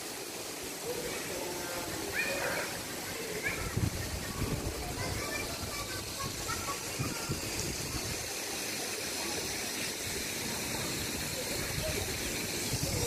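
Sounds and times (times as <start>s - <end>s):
fountain water splashing into pool: 0.0s - 13.0s.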